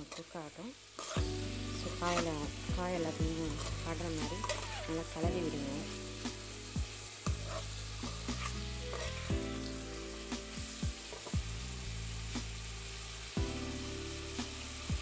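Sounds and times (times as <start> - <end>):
steel spoon scraping a pan: 0.0 - 0.3, 1.0 - 1.2, 3.3 - 5.2, 7.4 - 9.3
vegetables sizzling in a pan: 0.0 - 15.0.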